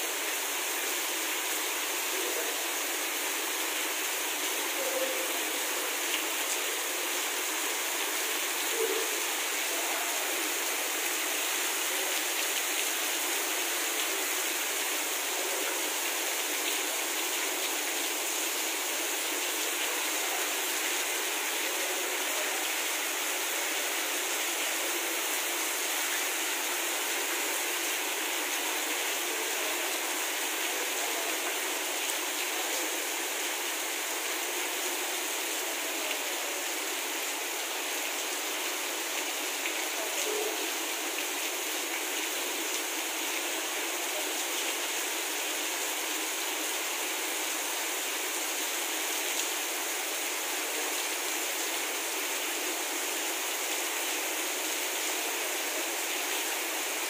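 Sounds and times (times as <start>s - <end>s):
heavy rain on wet ground: 0.0s - 57.0s.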